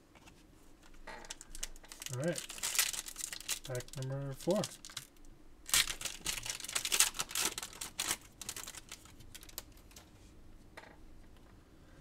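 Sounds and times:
foil wrapper crinkling: 0:00.8 - 0:10.1.

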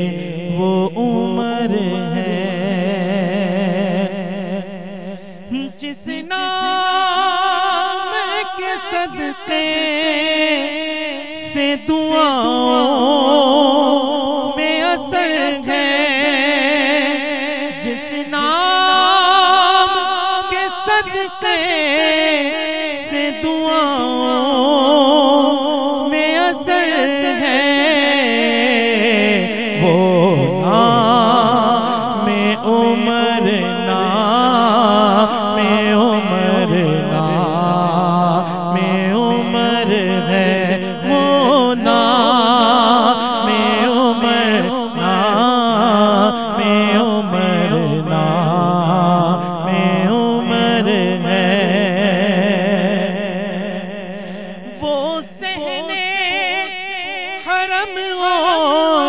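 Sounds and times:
man singing into a microphone: 0:00.0 - 0:59.0
steady low held tone: 0:29.8 - 0:32.7.

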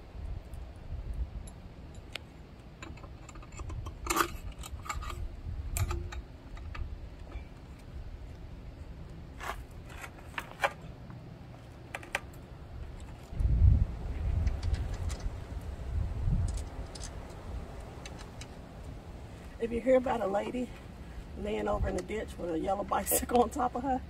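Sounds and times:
steady low rumble: 0:00.0 - 0:24.0
metal parts clicking and clinking: 0:02.8 - 0:07.7, 0:16.4 - 0:17.4.

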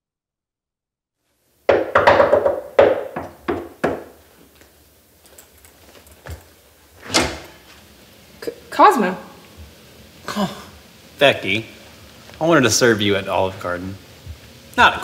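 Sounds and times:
door thud: 0:01.7 - 0:04.1, 0:07.0 - 0:07.6
knocking on a door: 0:01.7 - 0:04.2.

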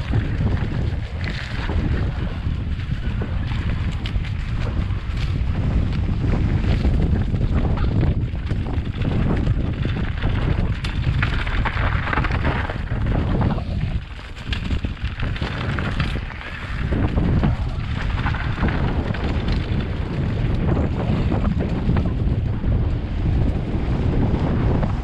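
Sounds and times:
stones crunching and rattling: 0:00.0 - 0:23.7
wind buffeting microphone: 0:00.0 - 0:25.0.

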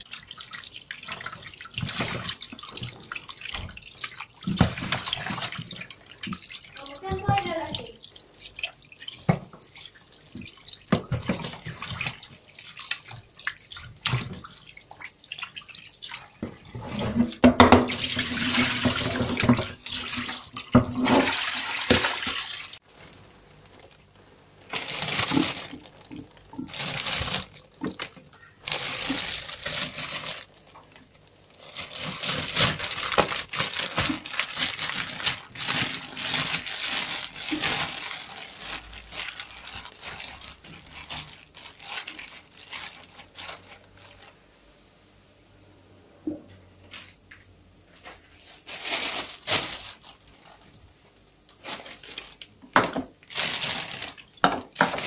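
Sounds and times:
plastic bag crinkling: 0:00.0 - 0:14.8, 0:15.5 - 0:44.4, 0:48.3 - 0:55.0
tap water splashing into metal basin: 0:17.2 - 0:22.8.

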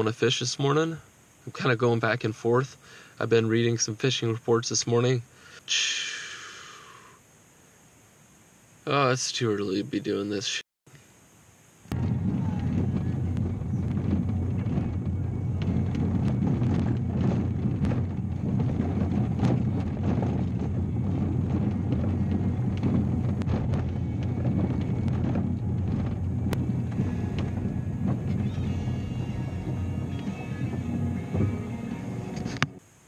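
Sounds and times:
engine and tyre rumble: 0:11.9 - 0:32.8
knocks and rattles: 0:11.9 - 0:32.8.

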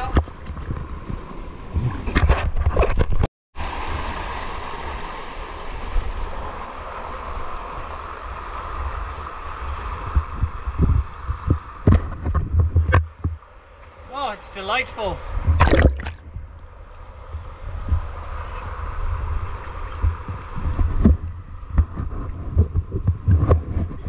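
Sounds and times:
rushing river water: 0:03.6 - 0:12.0, 0:13.0 - 0:22.6
wind buffeting microphone: 0:05.8 - 0:13.4, 0:15.2 - 0:24.0.

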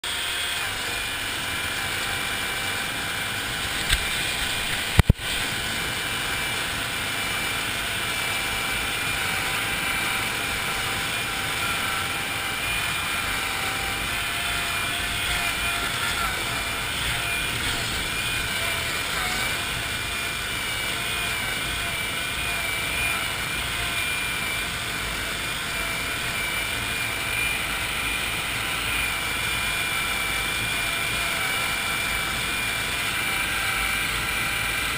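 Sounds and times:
tracked vehicle engine running: 0:00.0 - 0:31.2.

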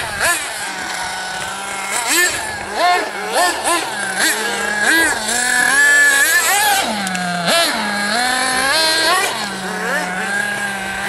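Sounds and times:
small nitro engine revving: 0:00.0 - 0:11.0.

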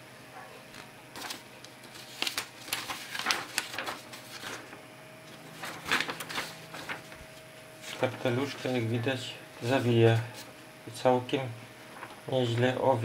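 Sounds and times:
desk fan humming: 0:00.0 - 0:13.0
paper fluttering in airflow: 0:01.1 - 0:08.8.

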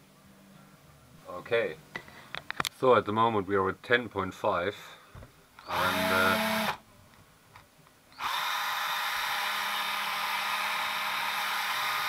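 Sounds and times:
small electric motor running: 0:05.7 - 0:06.8, 0:08.2 - 0:12.0.

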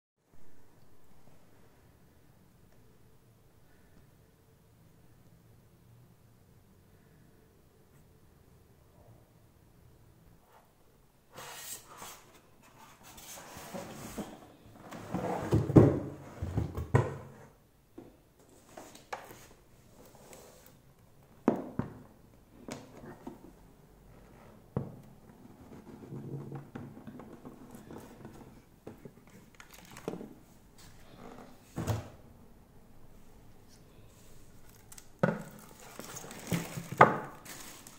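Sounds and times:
cardboard rustling and scraping: 0:11.3 - 0:17.4, 0:34.2 - 0:37.9.

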